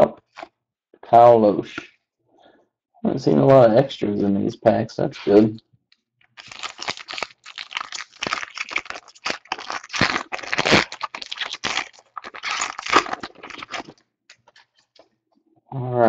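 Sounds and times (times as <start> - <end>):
foil wrapper crinkling and tearing: 6.4 - 14.5.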